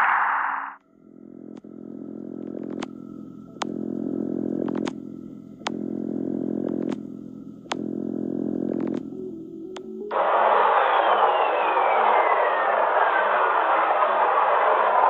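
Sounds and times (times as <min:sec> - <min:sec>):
low droning hum: 0:00.8 - 0:10.0.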